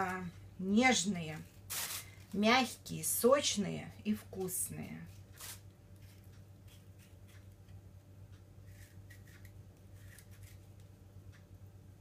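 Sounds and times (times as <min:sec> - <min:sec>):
steady low hum: 0:00.0 - 0:12.0
blade scraping pear skin: 0:08.6 - 0:10.8.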